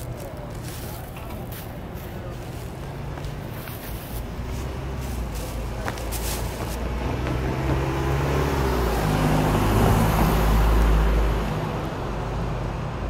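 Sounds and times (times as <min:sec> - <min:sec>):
vehicle passing by: 0:02.8 - 0:12.8.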